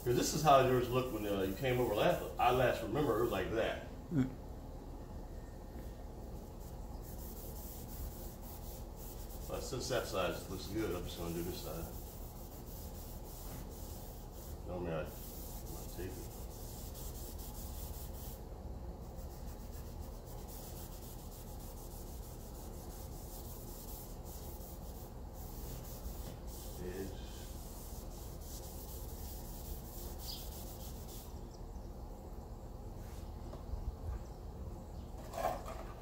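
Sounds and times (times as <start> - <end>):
masking tape pulled and rubbed: 6.4 - 18.4, 19.0 - 31.4.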